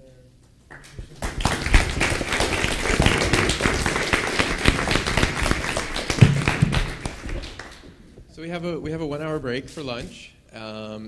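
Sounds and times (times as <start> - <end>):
audience applauding: 0.7 - 8.2.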